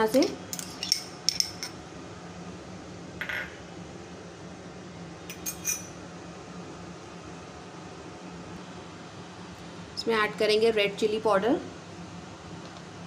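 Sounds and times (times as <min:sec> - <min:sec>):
glass bowls and spoon clinking: 0:05.3 - 0:05.9
spoon scraping: 0:05.3 - 0:05.9.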